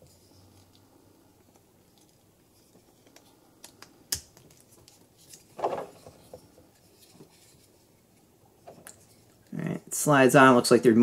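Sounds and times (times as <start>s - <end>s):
plastic parts scraping: 4.6s - 7.8s.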